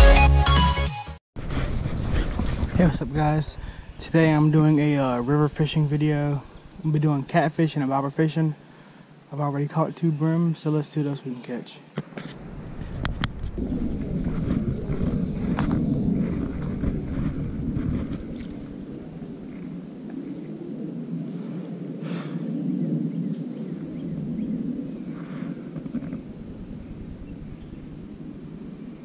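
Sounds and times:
low wavering outdoor rumble: 12.3s - 29.0s.

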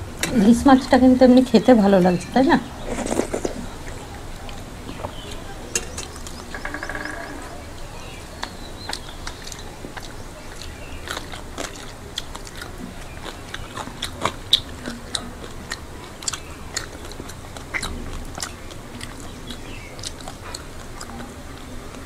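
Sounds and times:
wet chewing with lip smacks: 2.7s - 22.0s.

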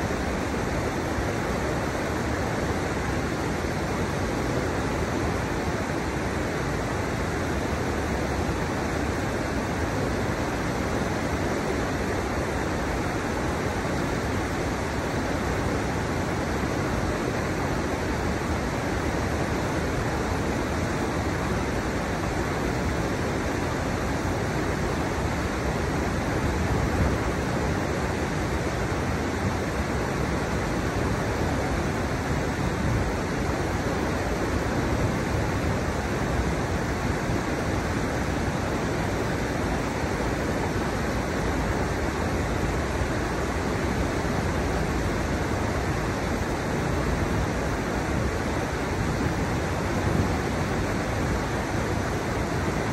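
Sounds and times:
river water rushing: 0.0s - 52.9s.

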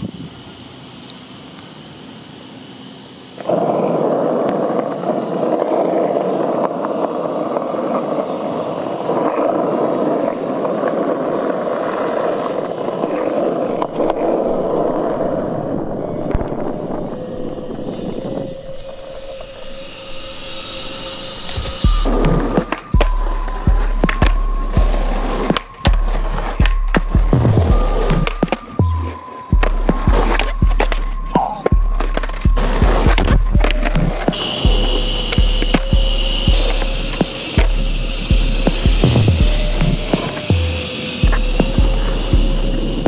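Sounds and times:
skateboard wheels rolling on asphalt: 0.0s - 43.0s.

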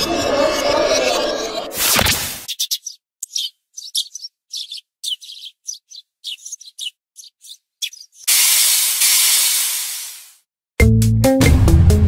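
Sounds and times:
small birds chirping: 2.4s - 8.3s
loud steam hiss: 8.3s - 10.4s.

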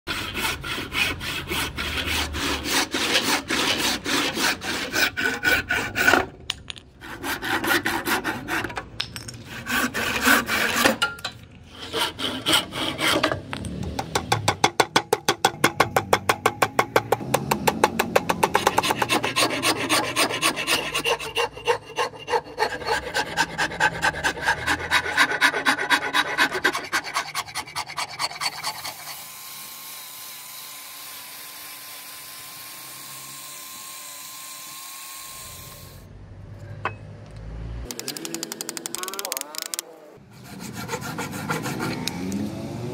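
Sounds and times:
rasp filing wooden handle: 0.1s - 6.3s, 7.0s - 8.8s, 9.5s - 11.0s, 11.7s - 13.4s, 17.0s - 29.2s, 40.3s - 42.2s.

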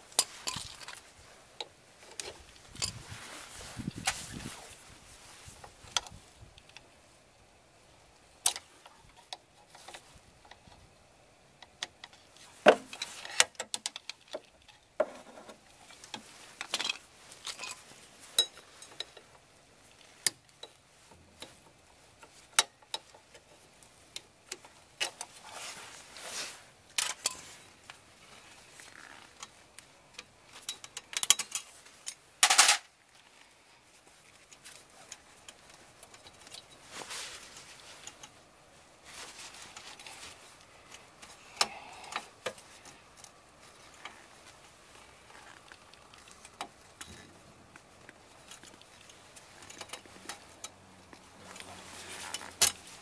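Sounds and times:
short rustling: 0.1s - 6.5s, 20.8s - 30.9s, 31.6s - 53.0s.

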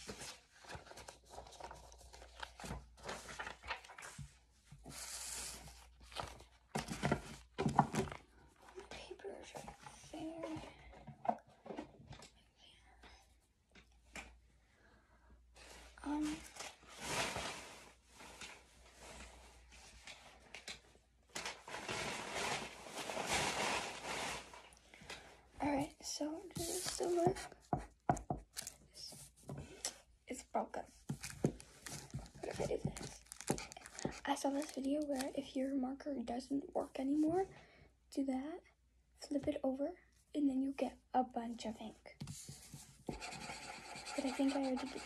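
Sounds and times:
paper rustling: 0.0s - 8.9s, 26.5s - 27.6s, 31.1s - 35.6s
rustling and handling noises: 0.0s - 14.6s, 15.5s - 36.0s, 41.7s - 45.0s.

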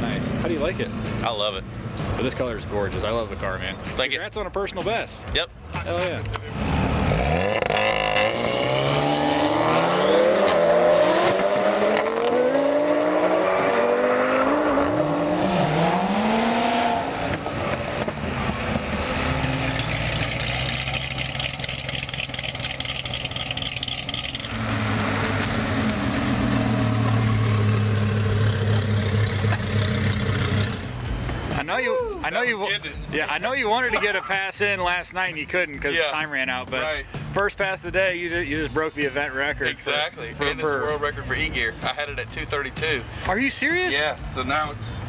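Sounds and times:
cars accelerating hard: 6.4s - 31.1s
car engine running steadily: 17.2s - 31.5s.

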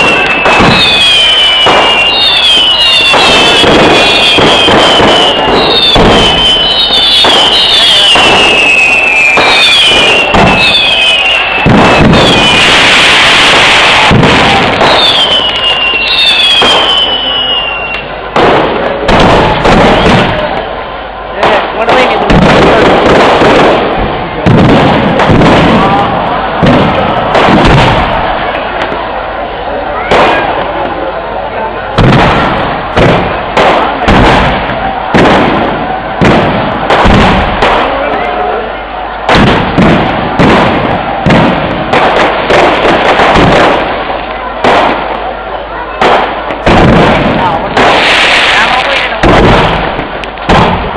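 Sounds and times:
whistling firework shells: 0.0s - 20.7s
firework bangs: 0.0s - 50.9s
rumbling echo: 18.1s - 45.3s, 46.0s - 50.9s.

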